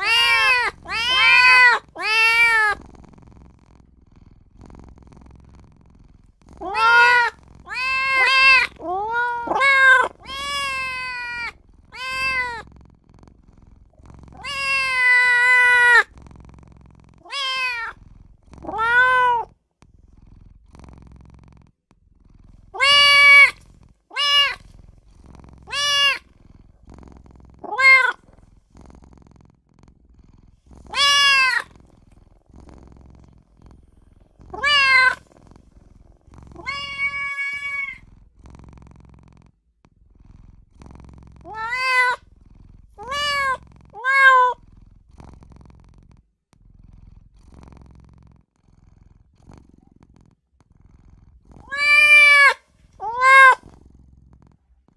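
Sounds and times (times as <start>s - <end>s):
kitten meowing: 0.0s - 2.8s, 6.6s - 12.6s, 14.4s - 16.1s, 17.2s - 18.0s, 18.6s - 19.5s, 22.7s - 24.6s, 25.6s - 26.3s, 27.6s - 28.2s, 30.9s - 31.7s, 34.4s - 35.3s, 36.5s - 38.0s, 41.5s - 42.2s, 43.0s - 44.6s, 51.6s - 53.6s.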